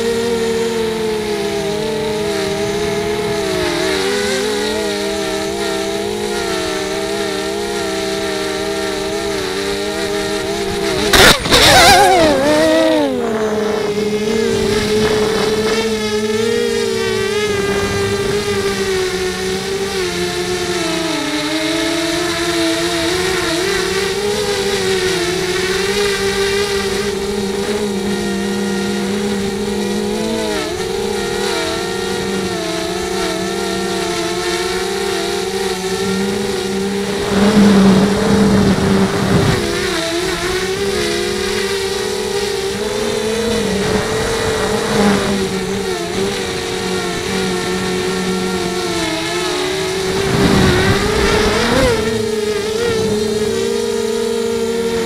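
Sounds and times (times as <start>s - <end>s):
quadcopter motors whining: 0.0s - 55.0s
bursts of rushing noise: 49.6s - 53.6s.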